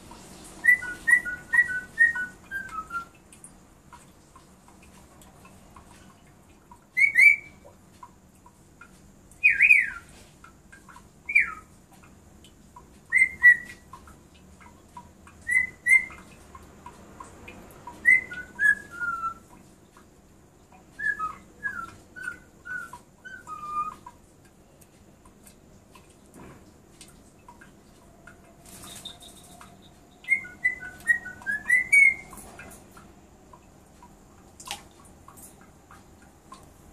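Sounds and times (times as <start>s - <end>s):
parrot whistling: 0.6s - 3.1s, 7.0s - 7.6s, 9.5s - 10.0s, 13.1s - 13.8s, 15.4s - 16.1s, 18.0s - 19.4s, 21.0s - 24.0s, 29.0s - 32.3s.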